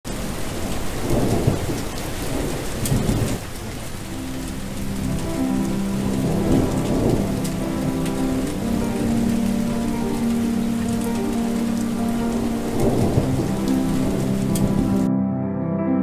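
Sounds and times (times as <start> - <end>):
steady rain: 0.0 - 15.1
thunder rolling: 0.1 - 15.1
soft sustained music notes: 3.8 - 16.0.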